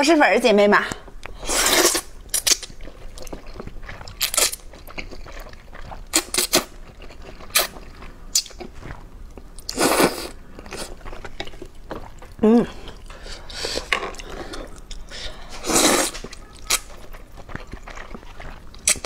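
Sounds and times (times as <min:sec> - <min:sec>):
chewing mouth sounds: 0:01.1 - 0:19.0
person slurping noodles: 0:01.4 - 0:02.1, 0:09.7 - 0:11.0, 0:12.4 - 0:16.2.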